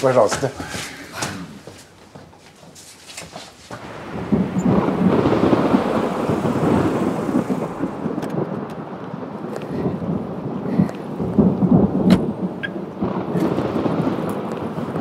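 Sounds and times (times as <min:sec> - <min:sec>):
loud rolling rumble with crackling: 0:03.7 - 0:15.0.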